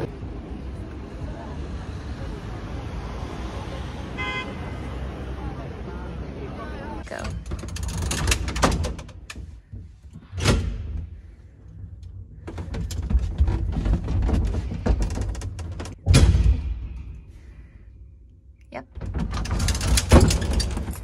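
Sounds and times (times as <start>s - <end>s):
lift doors clicking and rattling: 7.0s - 16.6s, 18.9s - 21.0s
metal door bang: 15.9s - 17.2s, 19.0s - 21.0s.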